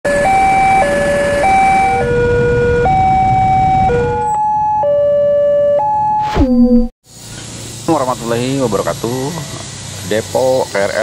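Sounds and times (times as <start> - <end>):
low traffic rumble: 0.1 - 5.1, 7.1 - 11.0
level crossing alarm tones: 0.1 - 6.9.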